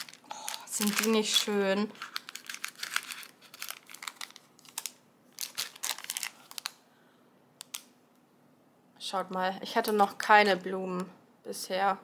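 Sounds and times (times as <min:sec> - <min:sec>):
plastic bags crinkling: 0:00.0 - 0:06.8.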